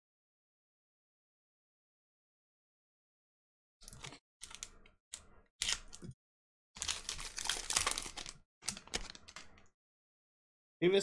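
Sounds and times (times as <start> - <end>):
foil wrapper tearing and crinkling: 6.8 - 9.6.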